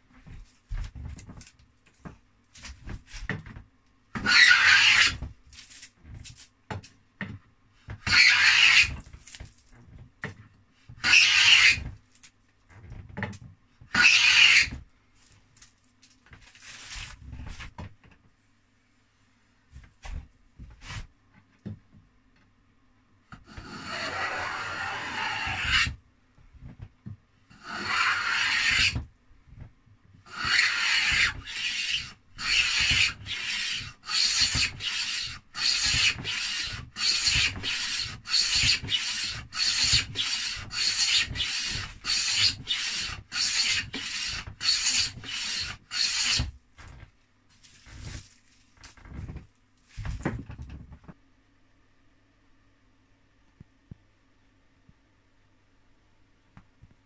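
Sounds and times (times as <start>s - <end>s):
hand plane cutting wood: 4.2s - 5.2s, 8.0s - 9.0s, 11.0s - 11.8s, 13.9s - 14.7s, 23.5s - 25.9s, 27.6s - 29.0s, 30.3s - 46.5s.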